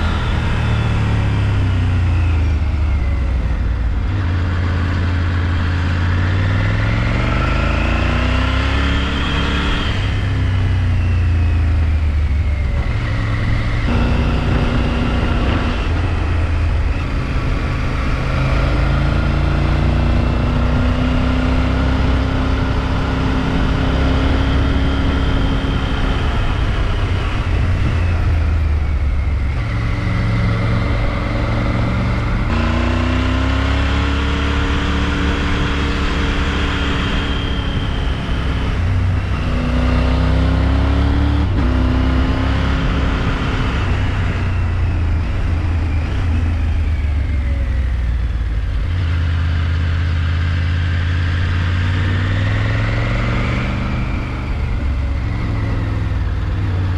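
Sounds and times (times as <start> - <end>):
motorcycle engine running: 9.7 - 39.7
steady rush of noise: 12.6 - 20.1.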